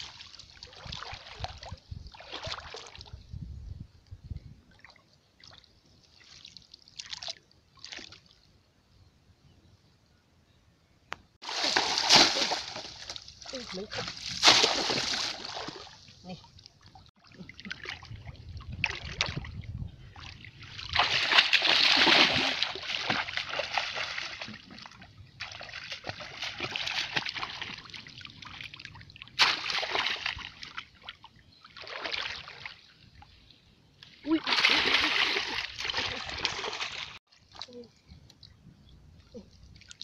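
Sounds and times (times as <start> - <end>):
muddy water splashing: 0.0 - 3.2, 11.4 - 33.0, 34.2 - 37.9.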